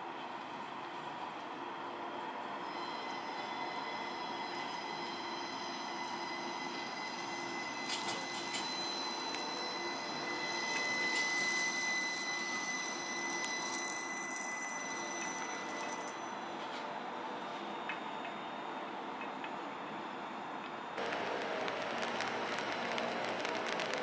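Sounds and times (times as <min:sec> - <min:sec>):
streetcar electric whine: 0:00.0 - 0:24.0
road noise hiss: 0:21.0 - 0:24.0.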